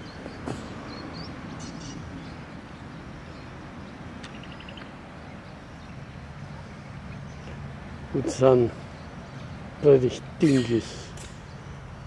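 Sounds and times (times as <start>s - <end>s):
bird chirps: 0.0s - 7.6s.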